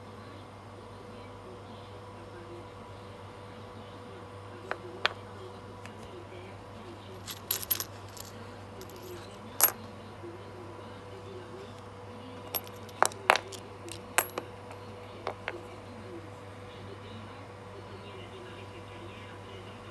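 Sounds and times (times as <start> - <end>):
faint steady hum: 0.0 - 19.9
metal tips clinking: 7.2 - 9.8, 12.5 - 15.6.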